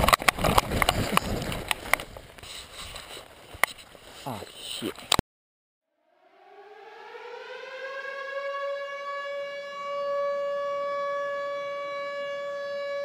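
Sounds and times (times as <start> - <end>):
siren-like tone winding up: 5.9 - 13.0.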